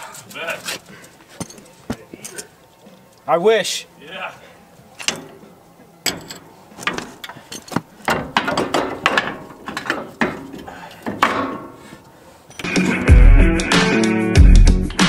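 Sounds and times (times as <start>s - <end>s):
guitar music: 12.6s - 15.0s.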